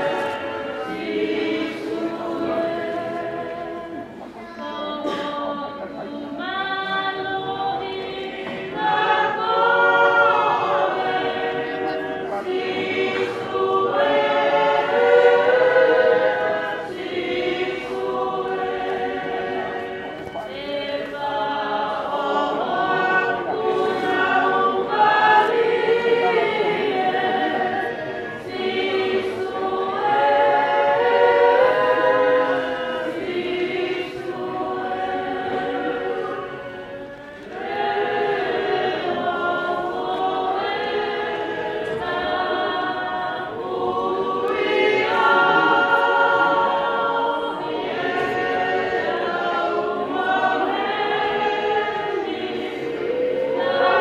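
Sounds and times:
choir singing a hymn: 0.0s - 54.0s.

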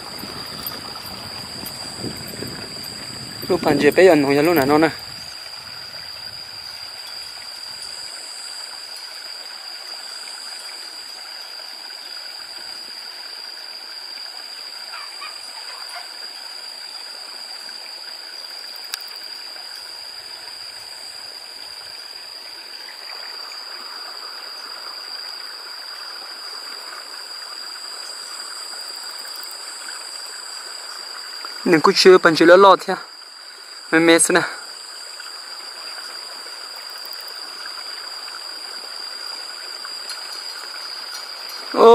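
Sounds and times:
stream rushing: 0.0s - 12.9s, 27.6s - 41.9s.

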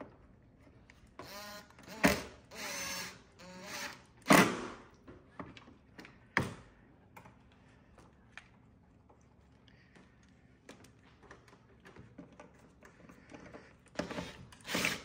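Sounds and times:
cordless driver driving screws: 1.2s - 4.0s, 14.0s - 15.0s.

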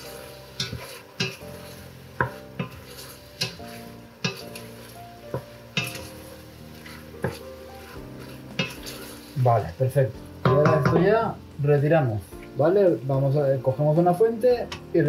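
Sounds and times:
utensil scraping a frying pan: 0.0s - 11.4s
light sizzle: 0.0s - 15.0s.

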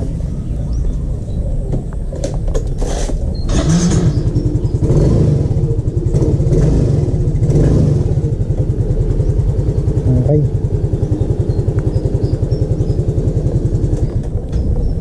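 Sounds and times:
scooter engine revving: 3.0s - 15.0s
engine knocks: 3.4s - 15.0s.

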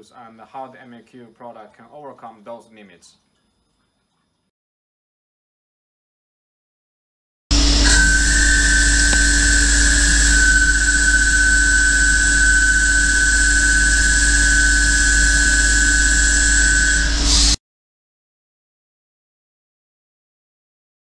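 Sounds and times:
high-pitched squeal of boring bar: 7.5s - 17.6s
metal cutting noise: 7.5s - 17.6s.

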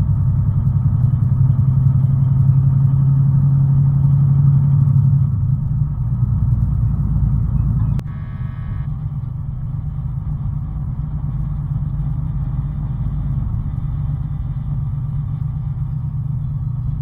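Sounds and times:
vehicle engine and road rumble: 0.0s - 17.0s.

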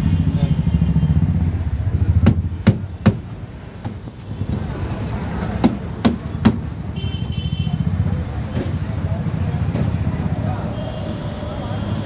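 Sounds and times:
sharp knocks: 2.2s - 4.0s.

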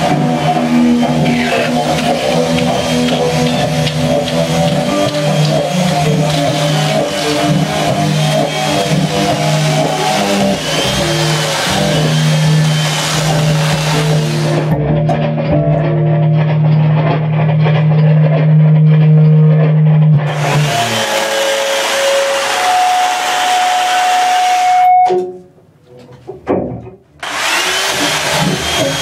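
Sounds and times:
chainsaw cutting wood: 0.0s - 14.7s, 20.2s - 24.6s, 27.2s - 29.0s.

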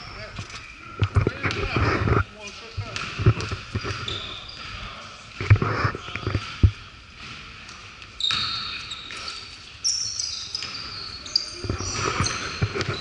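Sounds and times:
sneaker squeaks: 2.8s - 4.9s, 8.1s - 13.0s.

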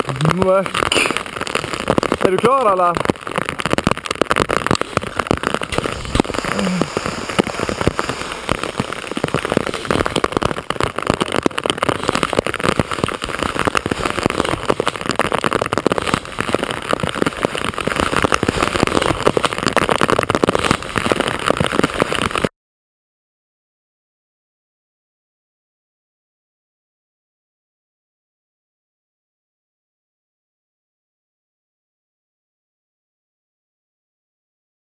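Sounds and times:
rain pattering: 0.0s - 22.5s.

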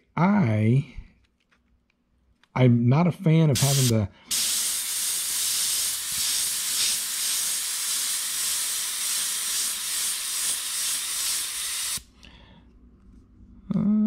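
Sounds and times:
airbrush hissing: 3.6s - 12.1s.

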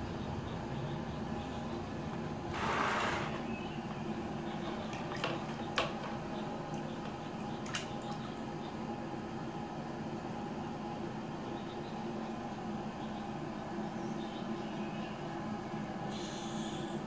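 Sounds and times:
steady low hum: 0.0s - 17.0s
water sloshing in a plastic basin: 3.2s - 8.5s.

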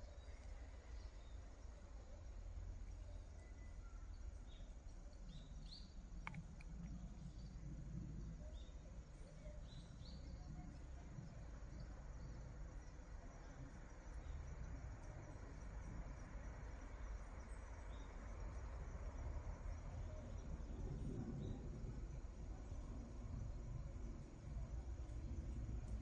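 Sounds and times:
small birds chirping: 0.0s - 15.4s
faint low rumble: 0.0s - 26.0s.

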